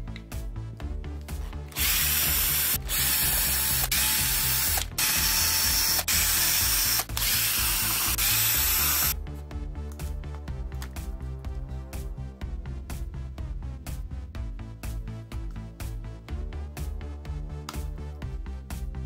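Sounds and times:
background music: 0.0 - 19.0
cordless driver running: 1.7 - 9.2.

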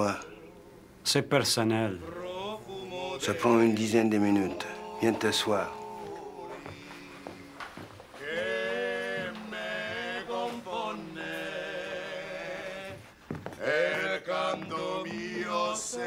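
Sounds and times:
man singing long notes: 2.0 - 13.1.

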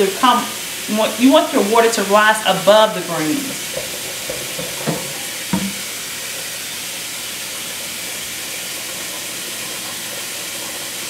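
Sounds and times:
faucet running into a bowl: 0.0 - 11.0
bowl bumps: 3.6 - 5.9.

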